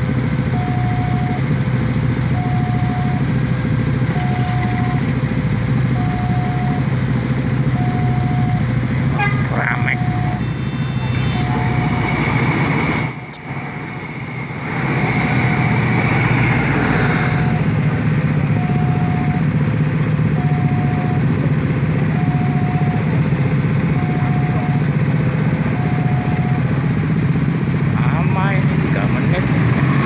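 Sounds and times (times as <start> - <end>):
motorcycle engines idling: 0.0 - 30.0
level-crossing alarm tones: 0.6 - 1.4, 2.4 - 3.3, 4.1 - 5.1, 5.9 - 6.9, 7.7 - 17.8, 18.4 - 19.5, 20.3 - 21.3, 22.1 - 23.1, 23.9 - 24.9, 25.7 - 26.7
passing train rushing: 10.4 - 18.1.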